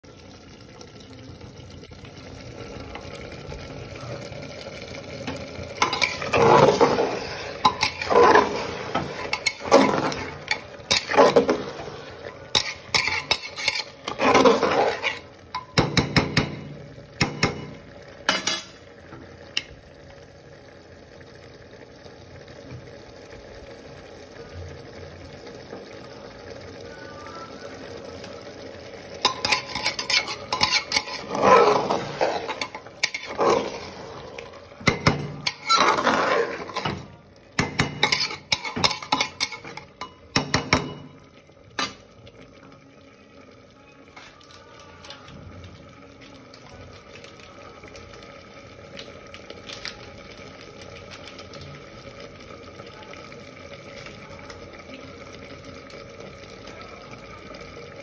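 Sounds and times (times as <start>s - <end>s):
food sizzling in a pot: 0.0s - 58.0s
metal spoon scraping a pot: 5.8s - 15.8s, 29.2s - 40.5s.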